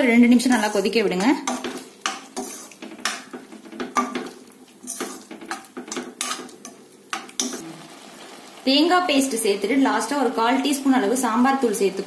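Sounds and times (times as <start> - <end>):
spoon scraping a steel pot: 0.4 - 7.6.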